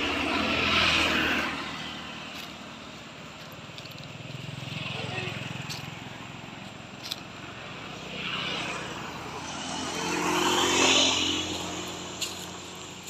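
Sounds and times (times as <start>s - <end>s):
motor vehicle passing: 0.0s - 13.0s.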